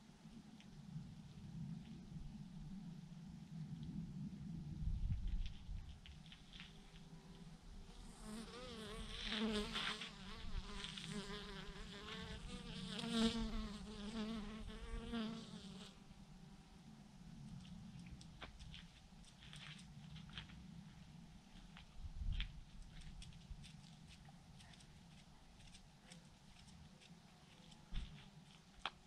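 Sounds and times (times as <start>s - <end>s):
low rumble: 0.0s - 6.9s.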